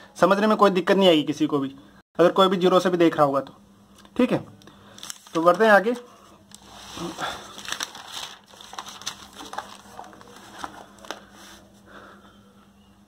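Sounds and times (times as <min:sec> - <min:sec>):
notebook pages turning: 0:06.5 - 0:11.6.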